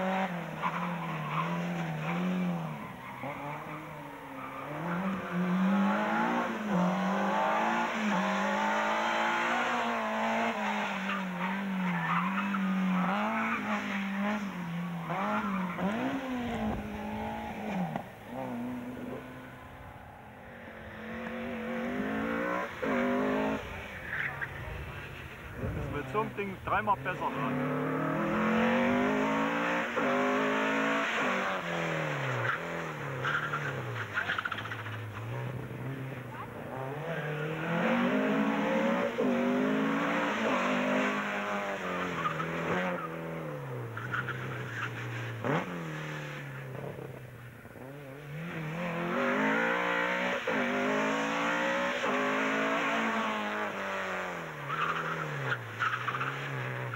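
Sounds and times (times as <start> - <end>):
car engine revving hard: 4.6 - 11.0, 12.3 - 19.7, 20.9 - 23.8, 25.6 - 47.2, 47.8 - 56.9.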